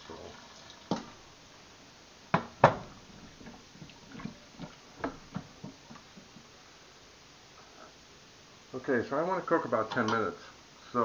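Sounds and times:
sharp knocks: 2.3s - 3.0s
wooden spoon stirring in pot: 2.7s - 6.5s.

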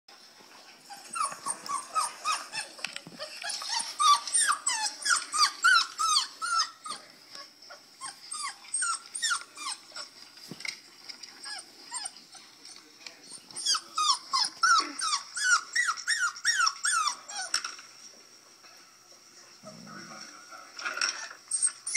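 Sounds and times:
puppies whining squeals: 0.8s - 10.2s, 11.4s - 17.6s, 21.1s - 21.9s.

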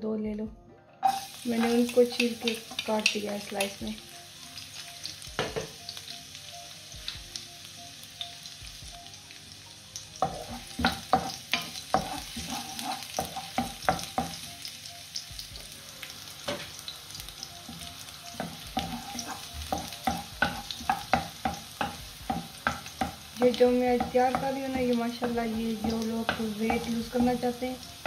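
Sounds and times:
garlic sizzling in oil: 1.0s - 28.0s
wooden spoon scraping a pan: 10.2s - 13.8s, 18.4s - 27.5s.

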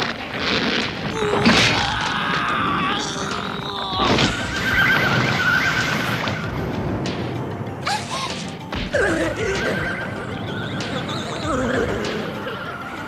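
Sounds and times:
dramatic background music: 0.2s - 13.0s
shrill monster cries: 1.1s - 5.9s.

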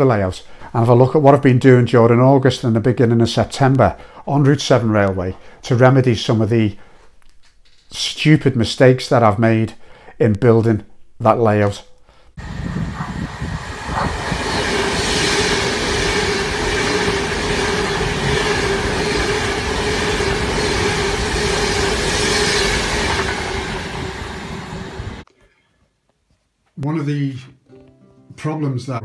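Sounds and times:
electric train passing: 12.4s - 25.2s
train hum: 12.4s - 25.2s.

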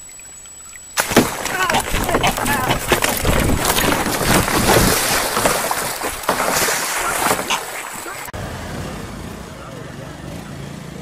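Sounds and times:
water splashing: 0.0s - 8.4s
knocks on kayak: 1.0s - 7.6s
bird wings beating: 1.0s - 8.3s
wind buffeting microphone: 1.7s - 6.3s.

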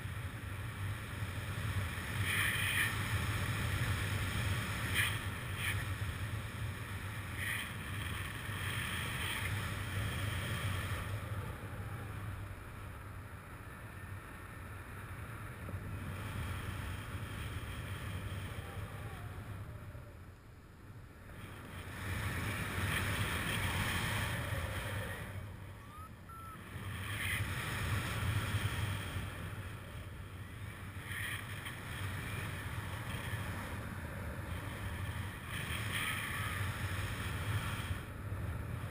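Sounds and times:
wind rushing over microphone: 21.0s - 38.9s.

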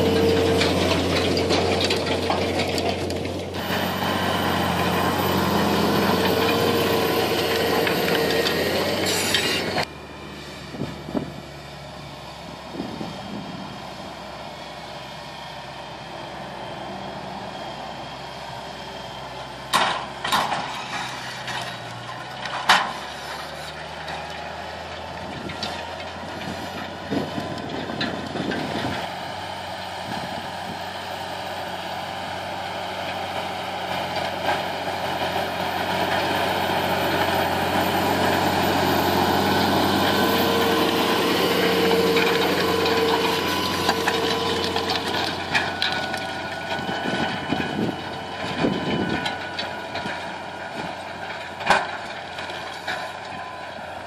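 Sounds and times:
implement clattering: 0.0s - 9.9s, 33.0s - 54.0s
tractor diesel engine: 0.0s - 54.0s.

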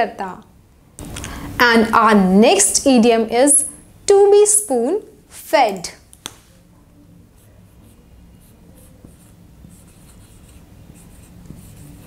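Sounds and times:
marker scratching on whiteboard: 7.4s - 12.0s.

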